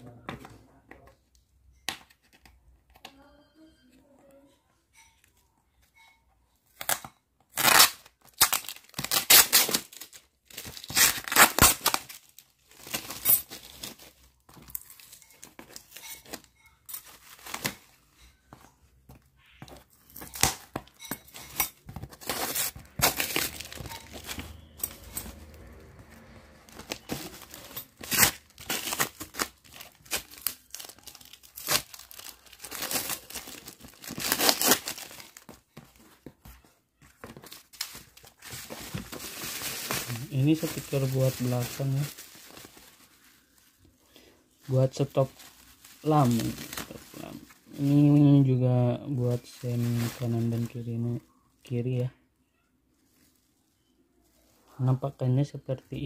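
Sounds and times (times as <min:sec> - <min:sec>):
crinkling: 0:04.3 - 0:56.0
cardboard ripping and tearing: 0:06.8 - 0:14.0, 0:21.9 - 0:25.2, 0:26.7 - 0:35.6, 0:44.8 - 0:48.0.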